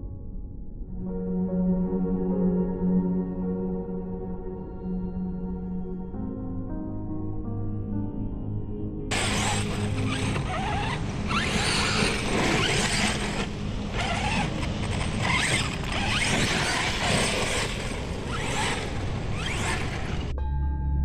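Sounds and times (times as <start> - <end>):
drivetrain and tyres rattling: 9.1 - 20.3
electric motor whining: 9.1 - 20.3.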